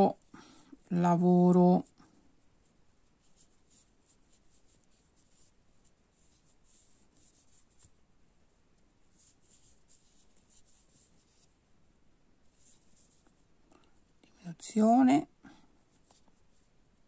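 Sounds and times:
crochet hook scratching yarn: 3.0s - 8.0s, 9.1s - 11.5s, 12.5s - 13.4s.

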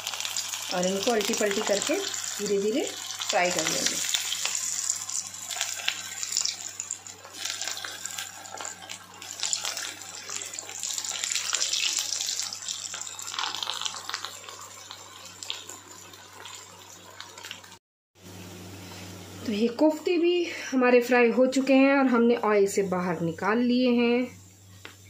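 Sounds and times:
oil sizzling and bubbling: 0.0s - 19.6s.

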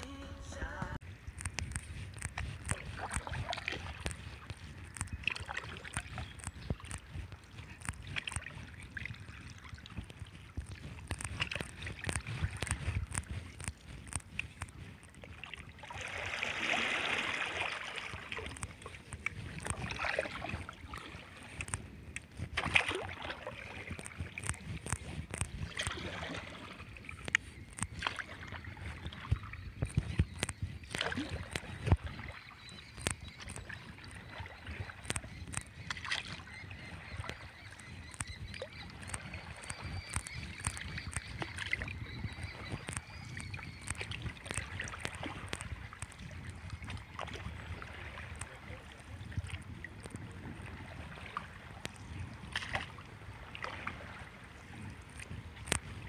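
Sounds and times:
sharp clicks and knocks: 0.8s - 8.6s, 10.0s - 15.2s
paddle splashing through water: 1.6s - 56.0s.

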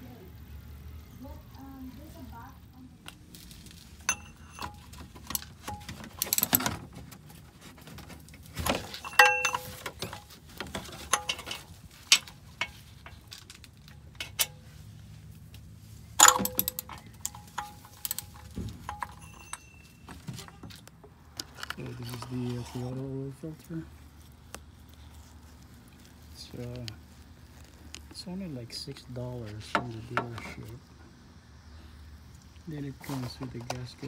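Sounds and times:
metal hand tools clinking: 4.0s - 6.6s, 8.7s - 13.3s, 16.2s - 20.6s.

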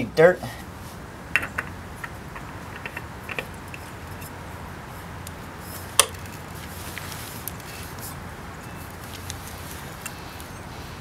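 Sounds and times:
oil filter clicks and taps: 1.3s - 3.8s.

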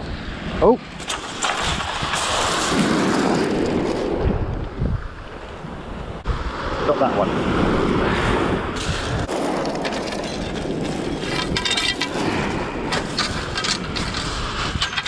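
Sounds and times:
wind: 0.0s - 15.0s
fishing rods clicking and rattling: 8.8s - 15.0s.

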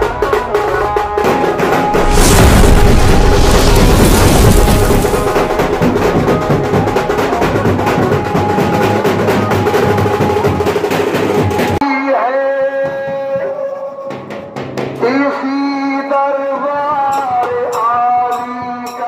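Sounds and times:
fast dense drumming: 0.2s - 11.8s.

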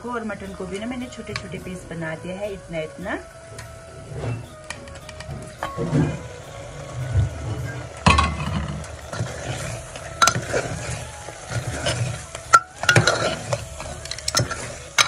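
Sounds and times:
meat sizzling: 0.0s - 15.0s
spoon stirring in pot: 7.7s - 15.0s.

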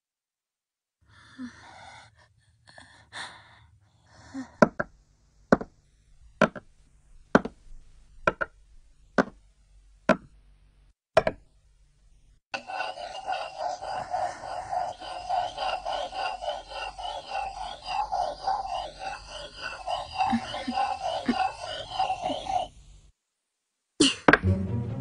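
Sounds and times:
cartoon footsteps knocking: 5.5s - 5.8s, 6.4s - 6.7s, 7.3s - 7.6s, 8.2s - 8.6s, 9.2s - 9.4s, 10.1s - 10.4s.

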